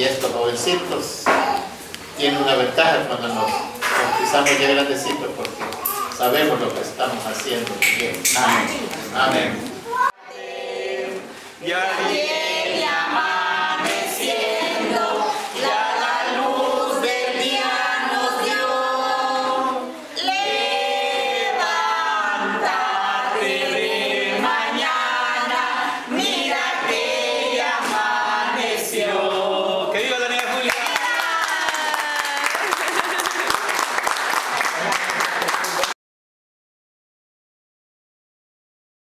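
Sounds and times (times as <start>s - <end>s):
hand clapping: 4.0s - 9.8s, 30.0s - 36.0s
congregation singing a hymn: 6.4s - 30.8s.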